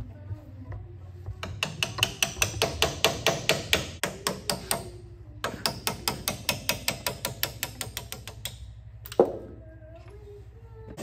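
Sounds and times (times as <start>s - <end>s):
hammer striking metal punch: 1.4s - 8.5s.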